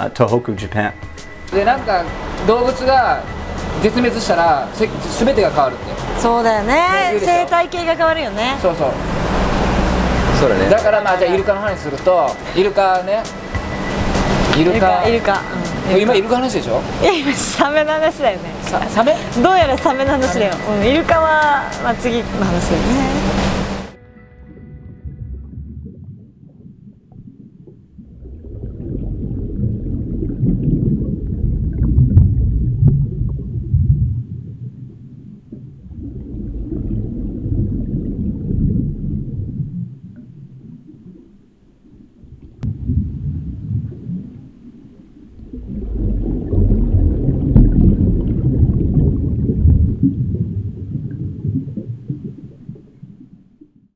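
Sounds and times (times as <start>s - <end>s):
deep low rumbling: 22.0s - 53.7s.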